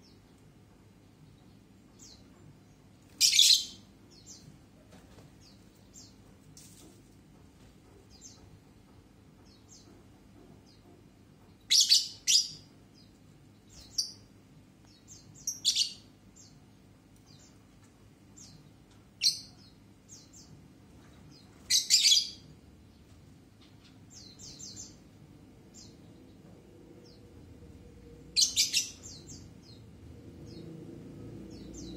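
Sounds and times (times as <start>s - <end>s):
lovebirds chirping: 0.0s - 6.8s, 11.6s - 26.4s, 28.3s - 30.8s.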